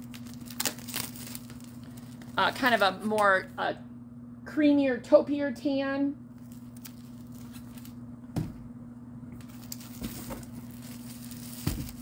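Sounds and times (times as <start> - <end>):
plastic rustling: 0.0 - 3.1, 6.3 - 8.0, 9.4 - 12.0
steady low hum: 0.0 - 12.0.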